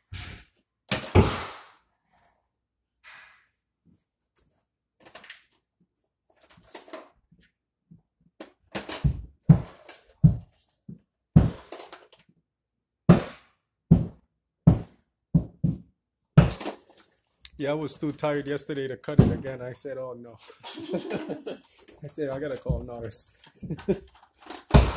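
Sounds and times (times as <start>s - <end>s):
irregular knocks and thuds: 7.9s - 11.8s, 13.1s - 16.8s, 19.1s - 19.6s, 22.4s - 24.0s.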